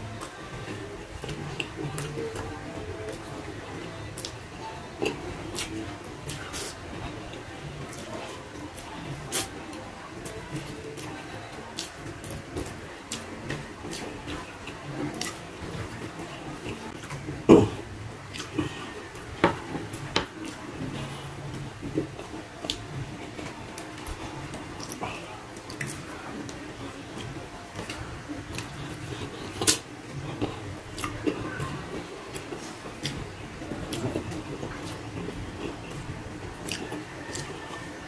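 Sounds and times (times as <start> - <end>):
person chewing with lip smacks: 27.2 - 33.2, 33.9 - 37.6.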